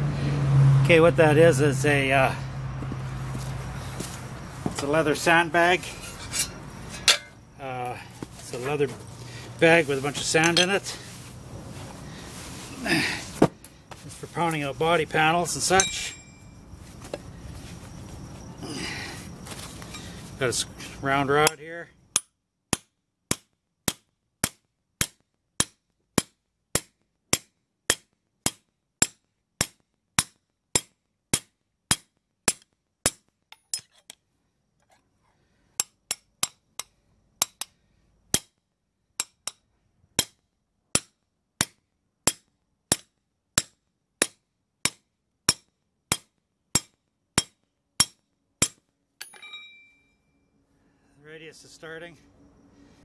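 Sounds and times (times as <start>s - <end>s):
hammer striking steel: 6.0s - 7.4s, 15.8s - 16.4s, 46.8s - 50.0s.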